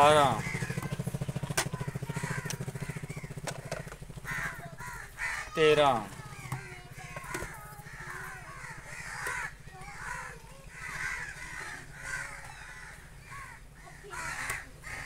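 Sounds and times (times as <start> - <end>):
crows cawing: 0.0 - 15.0.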